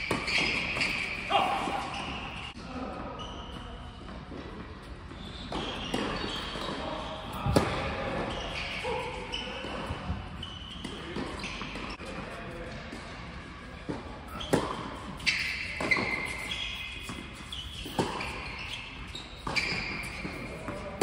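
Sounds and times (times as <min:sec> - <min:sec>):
ball bouncing on hard court: 0:00.0 - 0:02.2, 0:05.5 - 0:08.8, 0:14.3 - 0:21.0
shoes squeaking on court: 0:00.0 - 0:02.6, 0:03.2 - 0:21.0.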